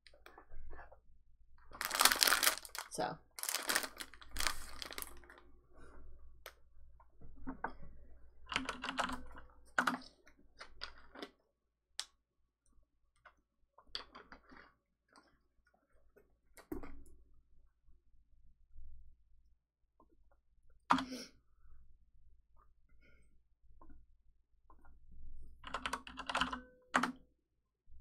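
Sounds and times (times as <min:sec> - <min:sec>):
typing on a computer keyboard: 0:08.5 - 0:10.1, 0:25.6 - 0:27.2.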